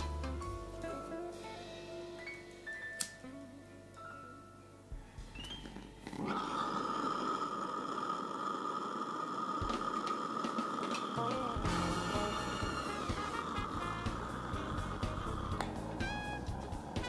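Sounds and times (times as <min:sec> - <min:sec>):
gas burner hissing: 0:06.0 - 0:17.0.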